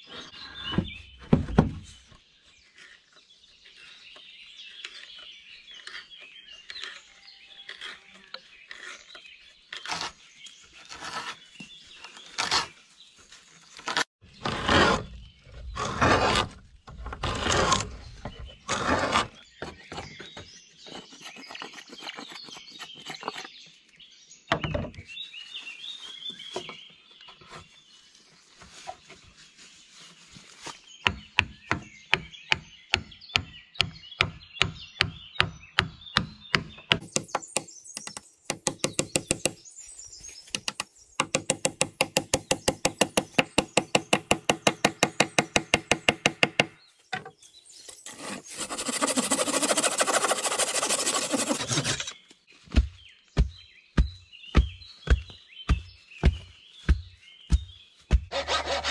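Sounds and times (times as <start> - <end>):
birds singing: 0.0 - 58.9
hand tools scraping wood: 2.6 - 12.8, 13.5 - 23.6, 37.0 - 39.6, 40.5 - 52.2, 57.6 - 58.9
fast knocks on wood: 33.0 - 39.6, 40.6 - 46.8, 52.7 - 58.3.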